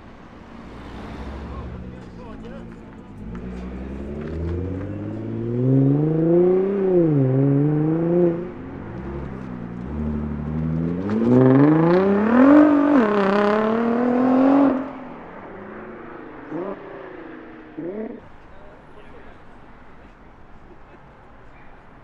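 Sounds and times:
car engines accelerating hard: 0:00.0 - 0:19.9.

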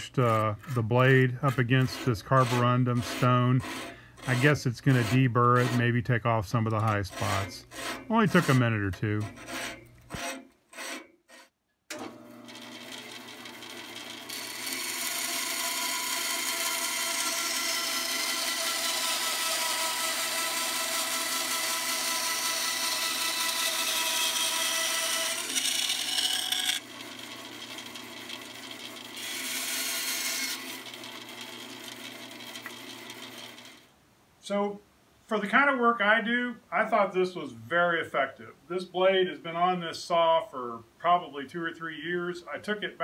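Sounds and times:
bandsaw motor running: 0:00.0 - 0:06.0, 0:06.6 - 0:33.9
bandsaw cutting wood: 0:00.0 - 0:33.9
blade rubbing on stone: 0:00.2 - 0:11.5.

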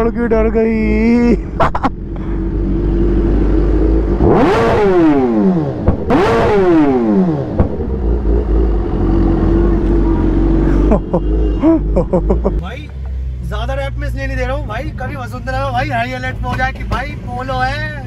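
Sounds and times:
motorcycle engine revving: 0:02.0 - 0:12.6
exhaust pop: 0:04.2 - 0:08.6.

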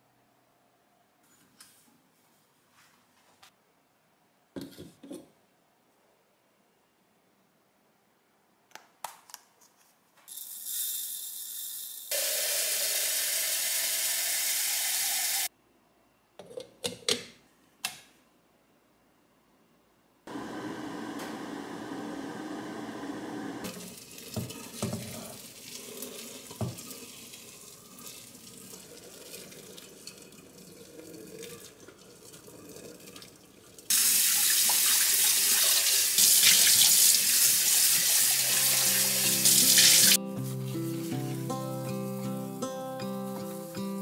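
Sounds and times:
background music: 0:38.4 - 0:44.0.

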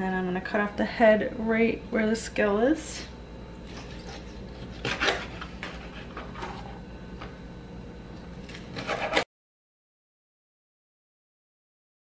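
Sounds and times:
knife cutting through fish: 0:08.5 - 0:09.2.

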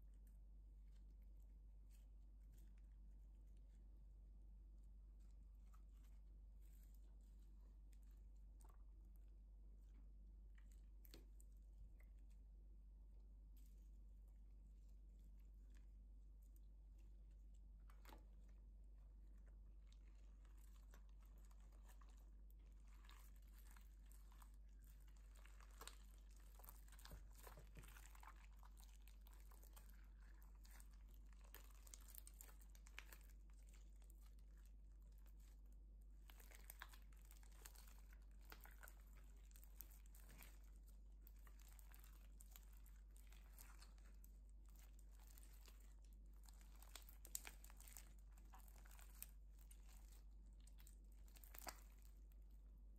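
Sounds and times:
low steady hum: 0:00.0 - 0:52.9
slime crackling and popping: 0:19.5 - 0:52.6.

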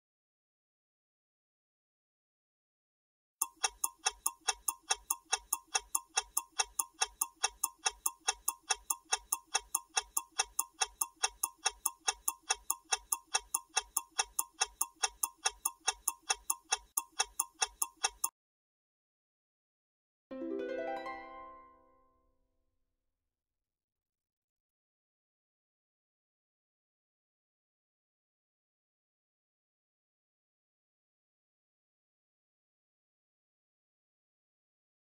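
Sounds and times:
clock ticking: 0:03.4 - 0:18.3.

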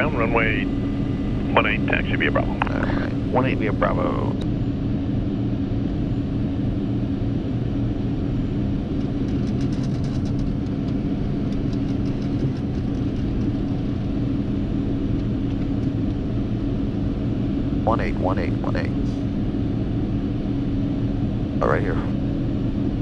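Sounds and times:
jet engines idling drone: 0:00.0 - 0:23.0.

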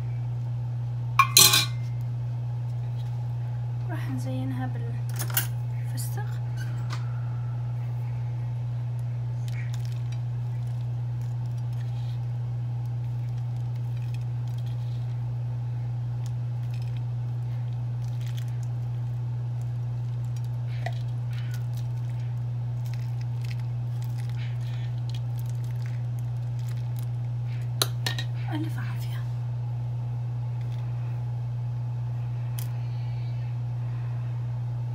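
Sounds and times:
steady low hum: 0:00.0 - 0:34.9
crushed nuts sprinkled ticking: 0:08.9 - 0:15.3, 0:16.1 - 0:28.0.

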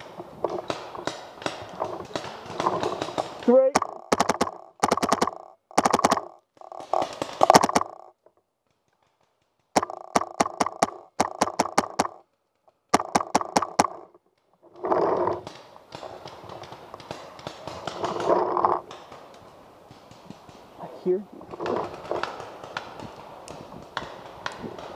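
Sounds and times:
paintball marker firing: 0:00.6 - 0:08.0, 0:09.8 - 0:12.2, 0:12.9 - 0:14.1.

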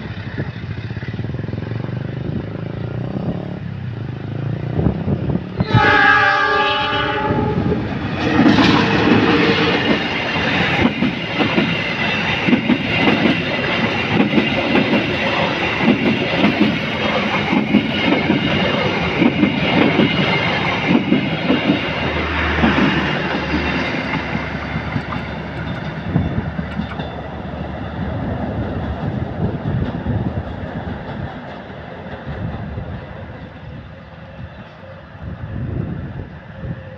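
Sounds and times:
locomotive horn: 0:05.6 - 0:07.8
train wheels clacking over rail joints: 0:08.0 - 0:33.6.

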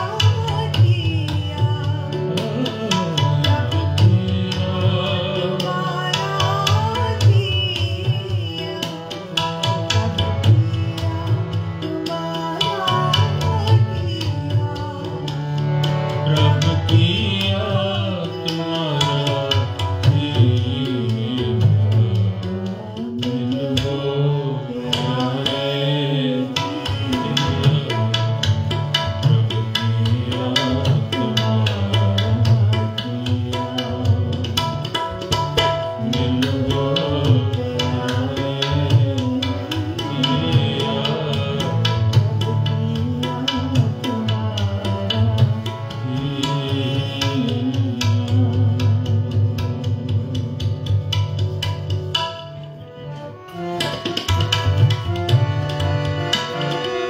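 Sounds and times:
young woman singing: 0:00.0 - 0:02.7, 0:05.5 - 0:09.1, 0:11.1 - 0:15.2
harmonium chords: 0:00.0 - 0:57.0.

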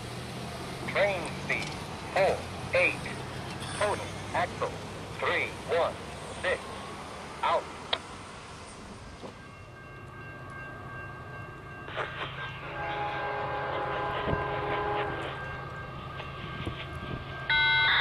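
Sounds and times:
diesel locomotive horn: 0:12.6 - 0:15.6, 0:16.7 - 0:18.0.

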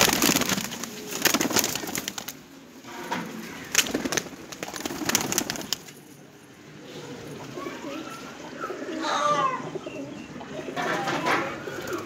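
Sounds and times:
pigeons cooing: 0:06.6 - 0:12.0.

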